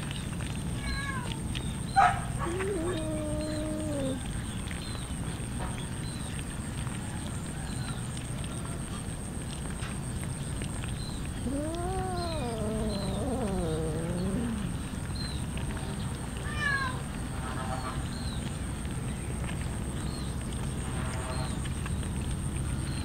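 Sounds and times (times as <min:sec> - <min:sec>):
background hiss: 0:02.0 - 0:04.6, 0:11.3 - 0:15.3
cat meowing: 0:02.4 - 0:04.3, 0:11.4 - 0:14.8.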